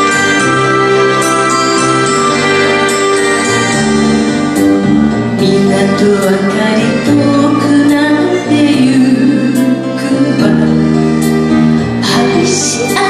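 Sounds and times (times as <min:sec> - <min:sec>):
backing music: 0:00.0 - 0:13.0
woman singing into microphone: 0:05.4 - 0:11.1, 0:12.0 - 0:13.0.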